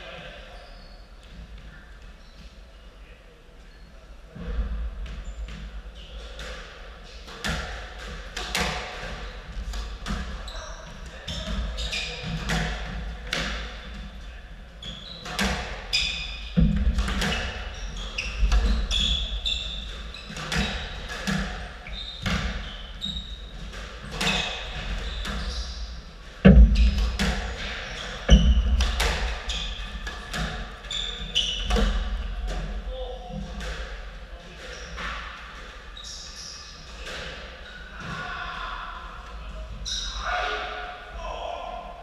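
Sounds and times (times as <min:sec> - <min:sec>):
shoes squeaking on wooden floor: 0:10.4 - 0:12.6, 0:14.8 - 0:32.3
heavy thumps: 0:16.5 - 0:17.6, 0:26.4 - 0:29.6.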